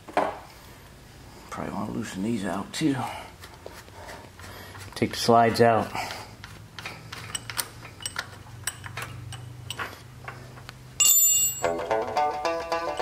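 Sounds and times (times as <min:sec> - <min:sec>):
small metallic clicks and taps: 0:06.4 - 0:10.8
plucked-string music: 0:11.6 - 0:13.0.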